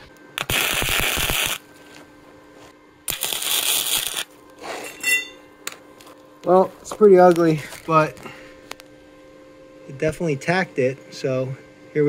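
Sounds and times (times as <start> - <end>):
crackling welding arc: 0.0 - 2.0, 3.1 - 4.6.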